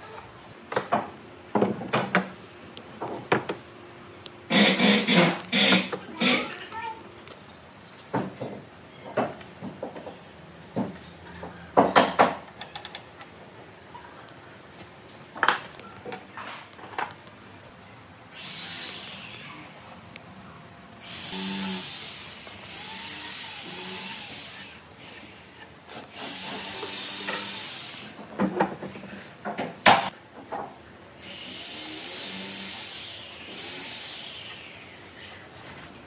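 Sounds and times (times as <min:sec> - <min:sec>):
woodworking tool hissing on wood: 0:04.5 - 0:06.4, 0:18.3 - 0:19.9, 0:21.0 - 0:28.2, 0:31.2 - 0:35.5.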